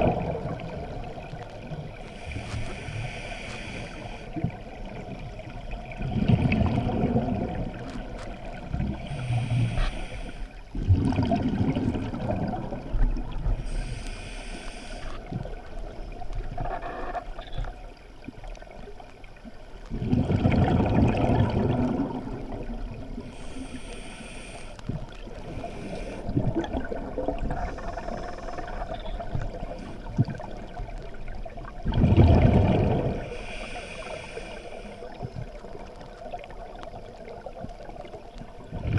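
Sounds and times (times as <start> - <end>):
exhaust bubbles rumbling underwater: 0.0 - 38.9
regulator inhalation hiss: 2.1 - 4.3, 9.0 - 10.5, 13.6 - 15.2, 23.3 - 24.8, 33.2 - 35.2.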